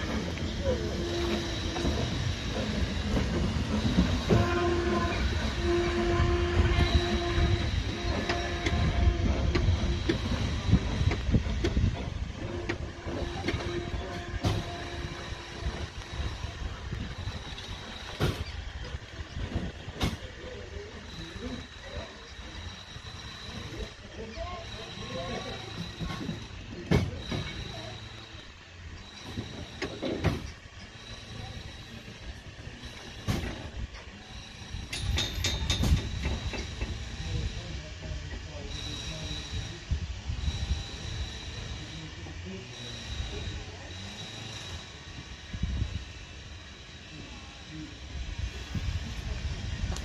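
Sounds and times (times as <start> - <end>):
wheels clicking over rail joints: 0.0 - 39.6
train low rumble: 0.0 - 50.0.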